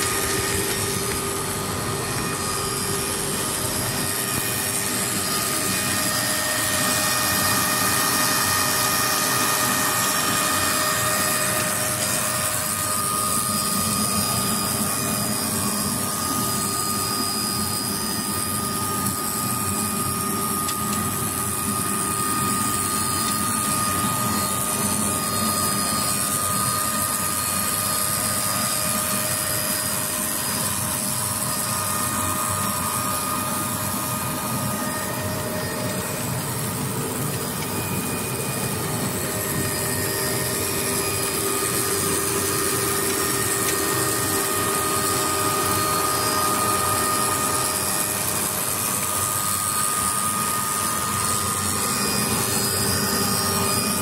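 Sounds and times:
machine whine over hiss: 0:00.0 - 0:54.0.

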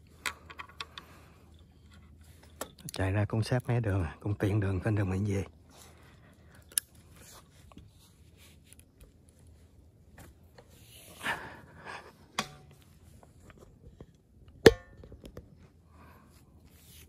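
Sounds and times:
rope and gear rustling and scraping: 0:05.6 - 0:11.4, 0:15.5 - 0:17.0.

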